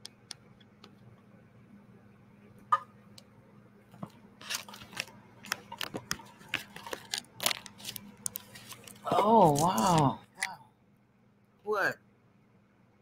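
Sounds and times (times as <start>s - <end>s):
crinkles and rustles: 4.0s - 10.1s.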